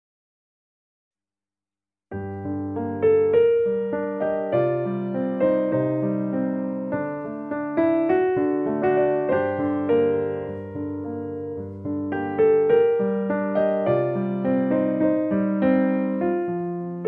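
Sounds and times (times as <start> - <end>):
slow piano music: 2.1 - 17.0.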